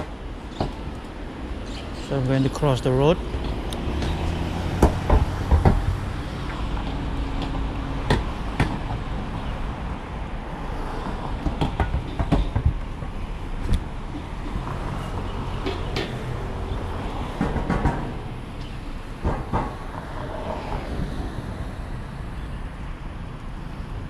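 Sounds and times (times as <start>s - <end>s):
road traffic rumble: 0.0s - 24.0s
bicycle rattling and knocking: 11.4s - 13.2s.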